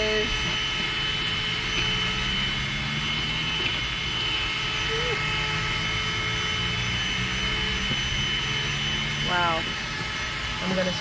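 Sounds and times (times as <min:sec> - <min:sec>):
handheld vacuum cleaner whining: 0:00.0 - 0:11.0.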